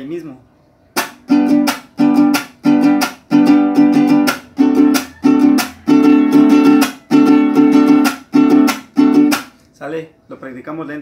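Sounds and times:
guitar strummed chords: 0:01.0 - 0:09.5.

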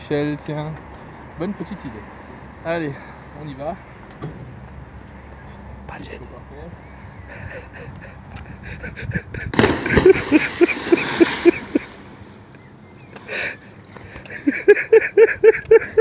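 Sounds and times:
big splash into water: 0:09.5 - 0:12.4.

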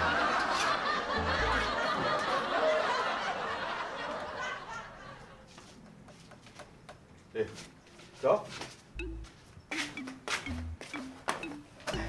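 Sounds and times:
canned audience laughter: 0:00.0 - 0:05.4.

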